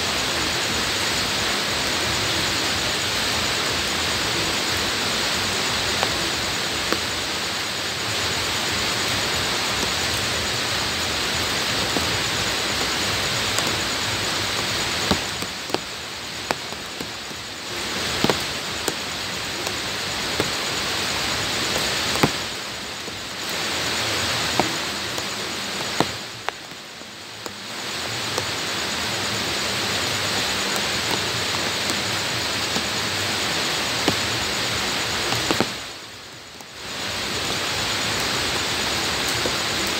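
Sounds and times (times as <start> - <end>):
rain falling on ground: 0.0 - 39.9
raindrops tapping close by: 0.3 - 39.9.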